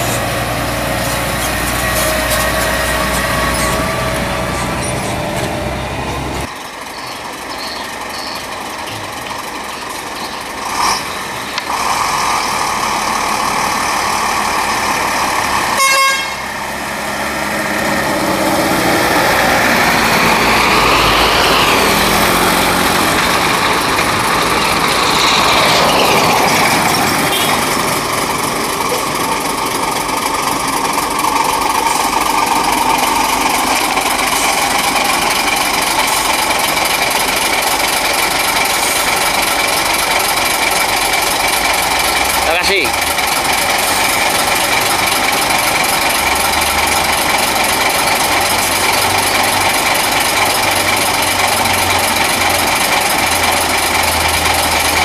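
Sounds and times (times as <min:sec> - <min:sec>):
diesel trucks driving past: 0:00.0 - 0:55.0
truck horn toot: 0:15.7 - 0:16.6, 0:27.1 - 0:27.9.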